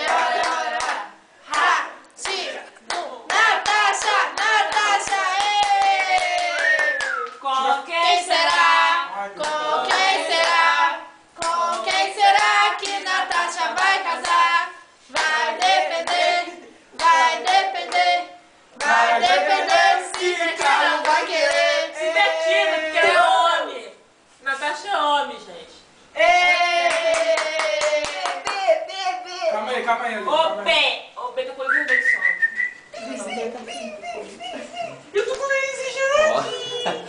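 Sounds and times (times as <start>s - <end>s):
group singing: 0.0s - 6.8s, 7.8s - 23.4s
rhythmic hand clapping: 0.0s - 7.5s, 9.4s - 10.7s, 11.4s - 16.4s, 17.0s - 18.2s, 18.8s - 21.8s, 26.8s - 28.7s.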